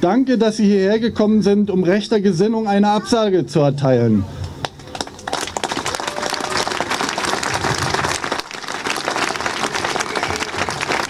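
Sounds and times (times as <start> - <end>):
large crowd applauding: 4.7 - 11.0.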